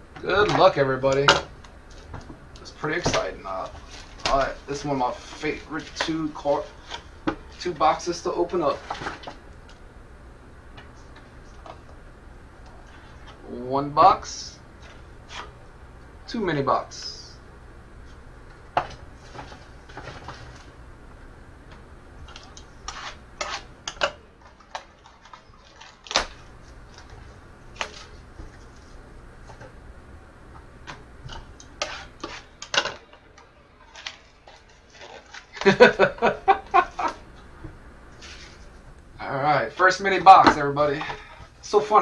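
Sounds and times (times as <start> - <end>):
cellophane crinkling: 24.4 - 28.8.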